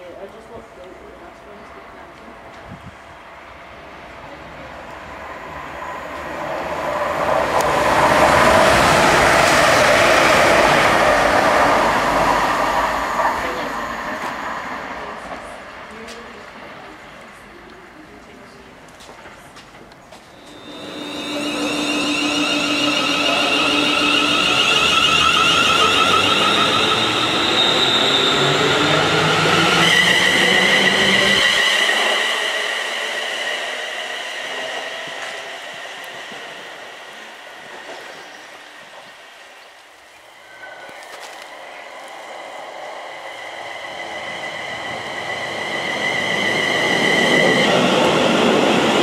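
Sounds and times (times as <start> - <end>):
electric train passing at speed: 0.0 - 49.0
electric train motor whine: 20.4 - 32.8.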